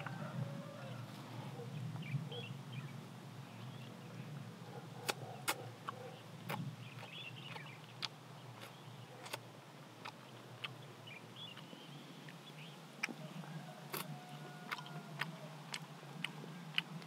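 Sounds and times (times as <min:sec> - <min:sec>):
faint bird chirps: 0:00.8 - 0:04.3
mouth clicks and lip smacks: 0:05.0 - 0:09.4, 0:13.9 - 0:14.1, 0:14.7 - 0:17.0.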